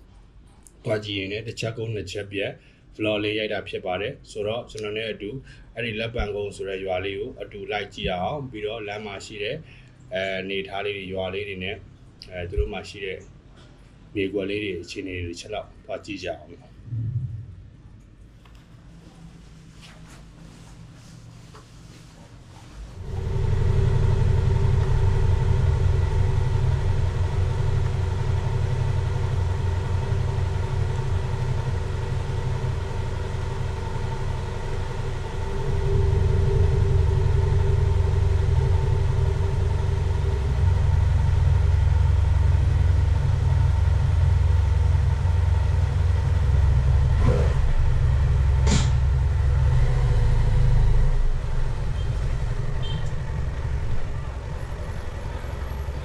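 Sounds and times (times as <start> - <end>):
motorcycle engine idling: 23.0 - 49.7.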